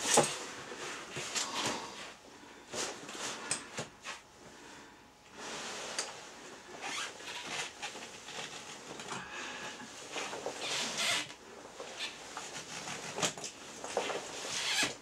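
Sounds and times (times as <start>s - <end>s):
rubber suit rustling and scraping: 5.4s - 15.0s.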